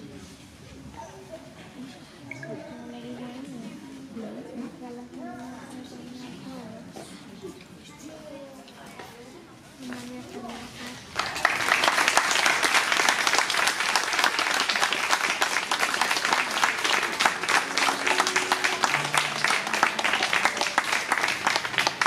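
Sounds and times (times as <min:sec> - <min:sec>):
audience applauding: 0:11.2 - 0:22.0.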